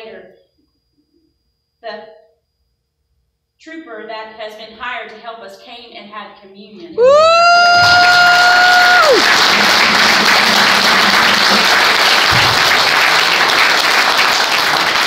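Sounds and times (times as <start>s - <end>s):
high woo cheer: 7.0s - 9.6s
crowd applauding: 7.0s - 15.0s.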